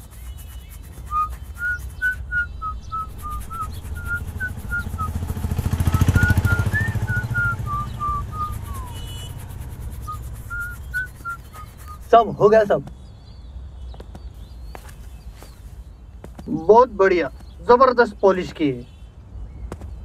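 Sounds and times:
person whistling a tune: 1.0s - 5.2s, 5.9s - 9.3s, 10.0s - 12.0s
vehicle passing: 2.6s - 12.0s.

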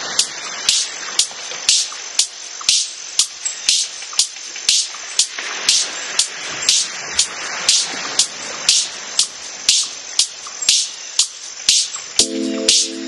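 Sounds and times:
electronic beat with hi-hat and snare: 0.0s - 13.0s
synth chords: 12.2s - 13.0s.

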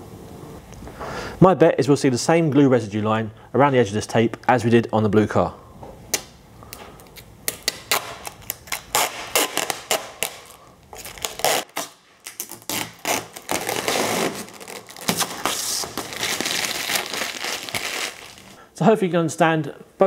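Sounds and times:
plastic film peeling off car: 7.5s - 18.6s.

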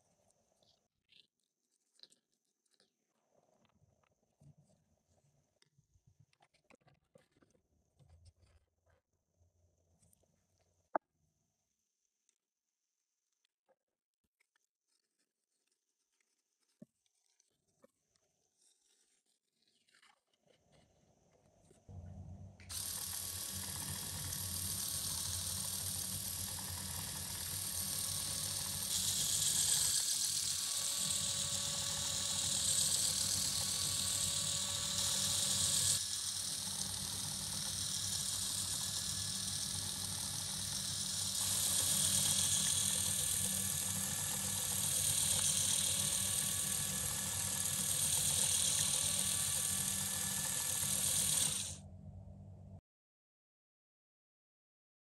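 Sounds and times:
electric motor and gears whirring: 21.8s - 52.7s.

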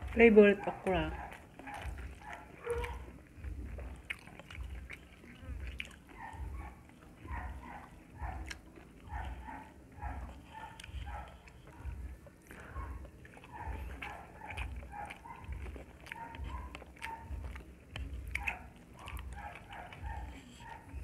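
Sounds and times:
close-up chewing: 0.0s - 21.0s.

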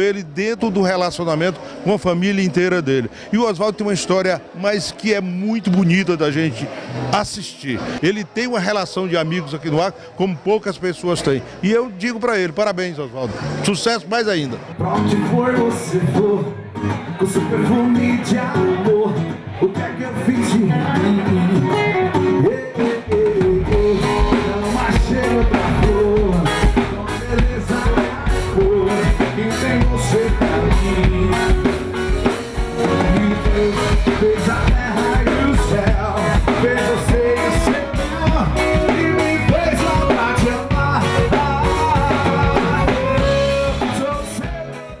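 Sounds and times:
live band playing: 5.6s - 45.0s
electric guitar: 14.6s - 45.0s
drum kit beat: 21.0s - 45.0s.

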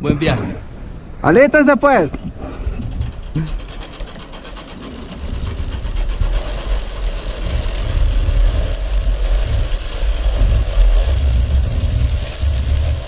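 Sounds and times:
pulley wheels rolling on steel cable: 2.7s - 13.0s.

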